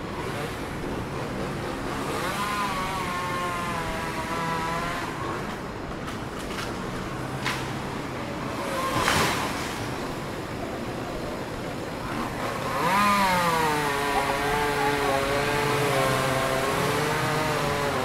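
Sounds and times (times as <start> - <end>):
street traffic: 0.0 - 18.0
vehicle engine revving: 0.2 - 5.4, 12.1 - 18.0.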